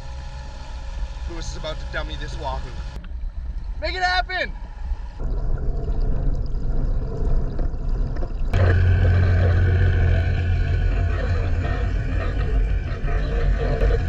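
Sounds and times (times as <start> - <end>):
boat motor drone underwater: 0.0 - 14.0
muffled underwater noise: 3.8 - 14.0.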